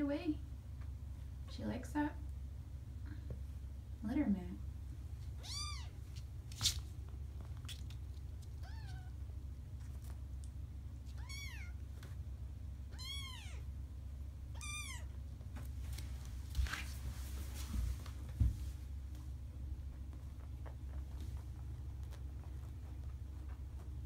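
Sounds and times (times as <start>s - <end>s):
kittens mewing: 14.6s - 15.1s.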